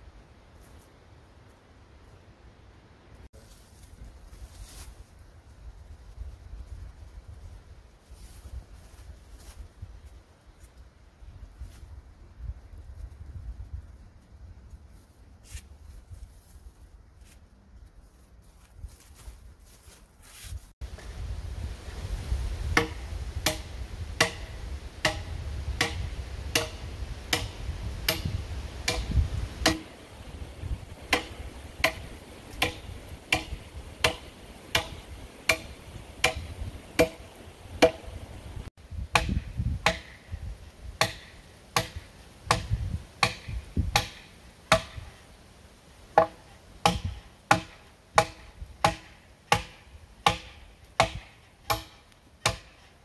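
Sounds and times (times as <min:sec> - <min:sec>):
wind rumble on microphone: 0:11.1 - 0:14.8, 0:20.8 - 0:41.0, 0:42.5 - 0:44.0
hand tool striking log: 0:22.8 - 0:30.0, 0:31.0 - 0:38.2, 0:39.1 - 0:40.2, 0:41.0 - 0:45.0, 0:46.2 - 0:52.9.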